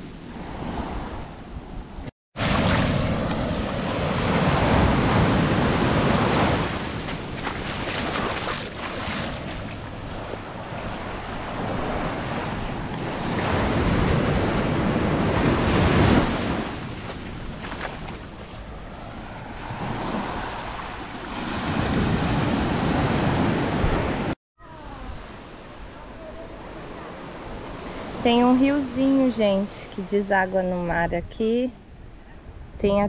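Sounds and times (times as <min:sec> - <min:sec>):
wind rumble on microphone: 0:00.0 - 0:28.3, 0:30.4 - 0:33.0
ocean waves breaking on beach: 0:02.4 - 0:29.8.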